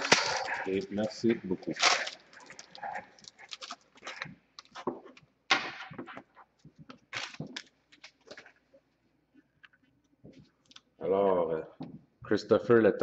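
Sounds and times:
foil wrapper crinkling: 0.0s - 4.8s, 6.9s - 8.6s.

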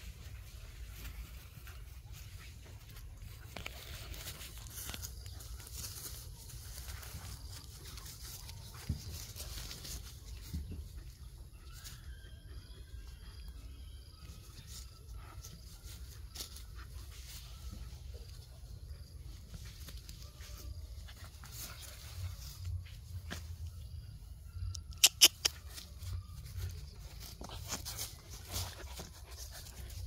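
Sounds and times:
puppies scuffling on grass: 0.0s - 12.2s, 14.2s - 24.2s, 25.3s - 30.0s.

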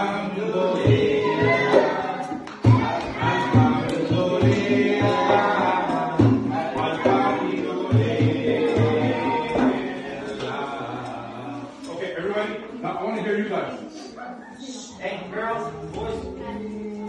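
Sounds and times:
man and children singing: 0.0s - 13.2s, 14.8s - 17.0s
low thumping beat: 2.6s - 10.0s.

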